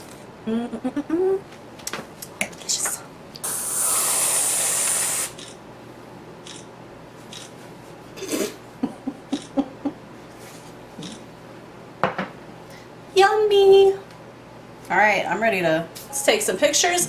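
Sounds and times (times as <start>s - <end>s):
aerosol can hissing: 3.4s - 5.4s.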